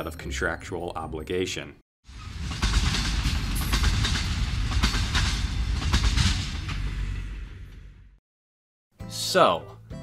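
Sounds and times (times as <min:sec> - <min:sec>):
freight train rushing past: 0:02.1 - 0:08.1
wheels clacking over rail joints: 0:02.2 - 0:07.3.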